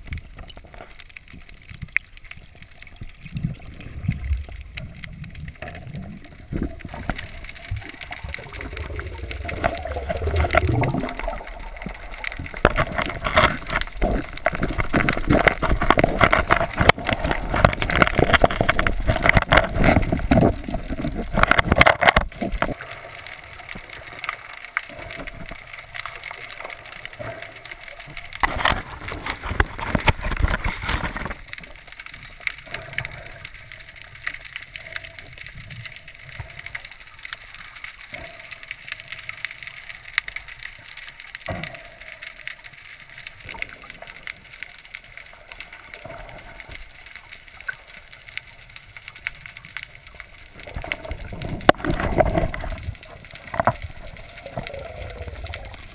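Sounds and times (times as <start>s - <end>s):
underwater crackle of clicks: 0.0s - 55.9s
bubbling rushes: 2.9s - 24.2s, 50.2s - 55.9s.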